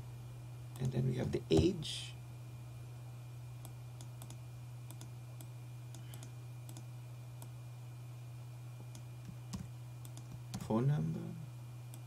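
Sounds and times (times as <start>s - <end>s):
steady low hum: 0.0s - 12.0s
computer mouse clicks: 3.6s - 7.5s, 8.9s - 10.4s.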